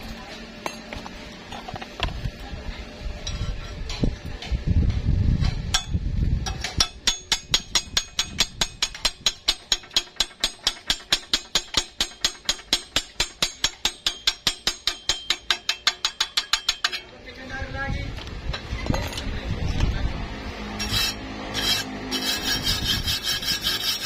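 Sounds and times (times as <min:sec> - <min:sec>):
hammer tapping on metal: 0:05.8 - 0:17.0.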